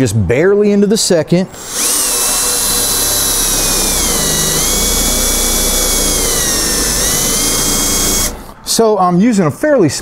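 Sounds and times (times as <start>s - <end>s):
electric drill whining through metal: 1.5s - 8.6s.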